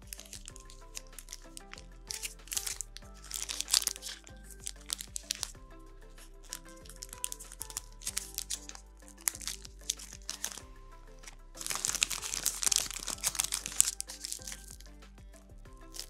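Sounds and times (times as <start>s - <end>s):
cling film crinkling: 0.0s - 5.6s, 6.2s - 10.6s, 11.2s - 15.1s
soft background music: 0.0s - 16.0s.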